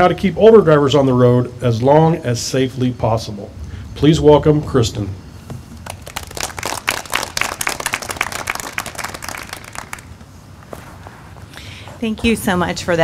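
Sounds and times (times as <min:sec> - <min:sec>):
audience applauding: 0:05.8 - 0:10.2.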